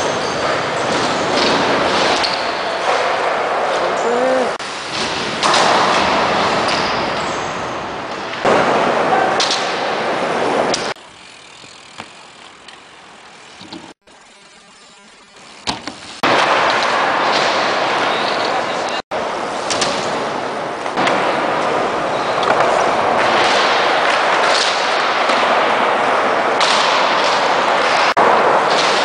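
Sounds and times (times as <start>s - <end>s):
bike tyres rolling on ramps: 0.0s - 29.0s
people's voices: 3.8s - 4.6s.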